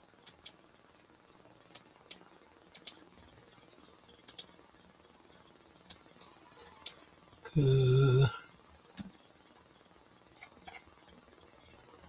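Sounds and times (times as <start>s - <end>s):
computer mouse clicking: 0.2s - 0.6s, 2.8s - 3.1s, 4.3s - 4.5s.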